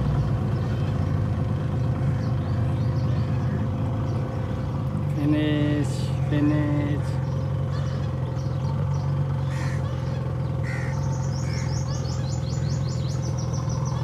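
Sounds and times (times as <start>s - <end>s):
birds chirping: 0.0s - 14.0s
boat engine droning: 0.0s - 14.0s.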